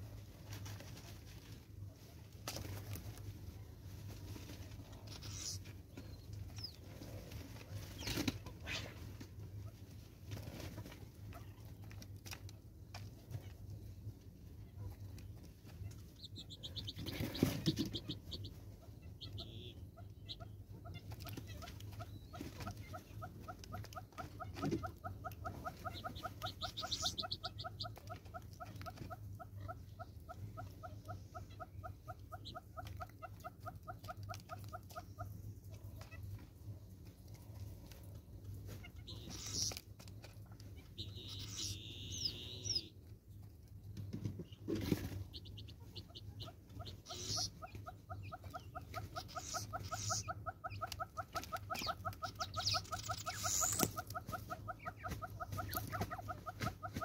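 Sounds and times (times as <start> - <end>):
birds rustling and tapping: 0.1 - 42.3, 43.0 - 57.0
bird chirp: 5.1 - 7.0, 14.8 - 35.4, 38.8 - 43.4, 44.0 - 57.0
fast high-pitched bird notes: 39.1 - 39.7, 41.0 - 42.9, 49.2 - 50.3, 51.8 - 53.9.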